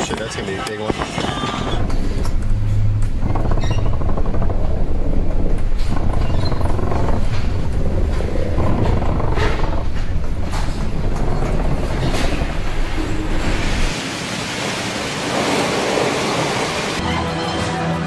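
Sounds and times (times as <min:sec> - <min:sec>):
deep rumble: 0:00.9 - 0:14.0
waves breaking against ship: 0:01.8 - 0:17.0
spray and rushing water: 0:12.8 - 0:17.0.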